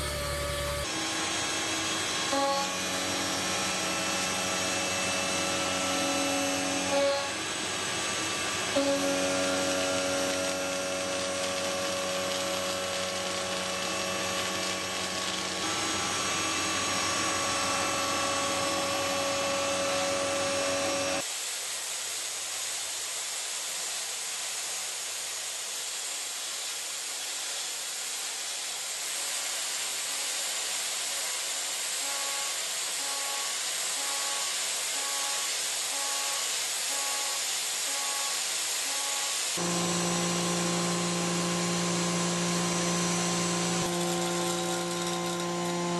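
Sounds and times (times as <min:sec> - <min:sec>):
milling machine cutting steel: 0:00.0 - 0:21.2, 0:32.0 - 0:45.9.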